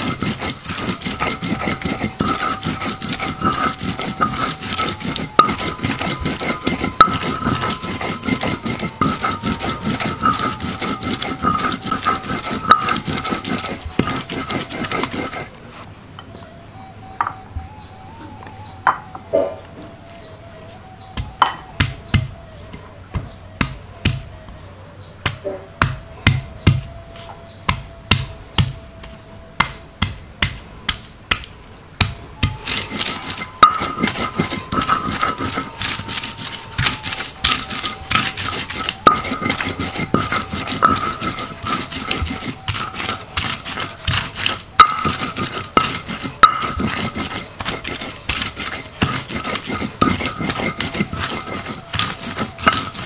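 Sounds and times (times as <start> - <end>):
utensil scraping: 0.0 - 15.9, 32.4 - 53.0.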